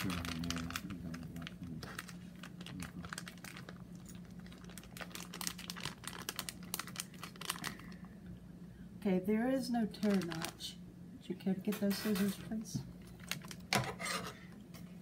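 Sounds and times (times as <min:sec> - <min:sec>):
foil pouch crinkling: 0:00.0 - 0:08.1, 0:09.9 - 0:10.7, 0:13.0 - 0:13.7
steady low hum: 0:00.0 - 0:15.0.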